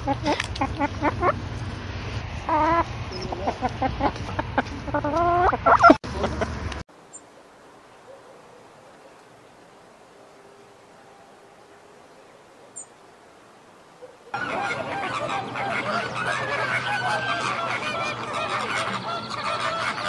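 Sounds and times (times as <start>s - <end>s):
hens clucking: 0.0s - 1.5s, 2.4s - 6.4s, 14.0s - 20.0s.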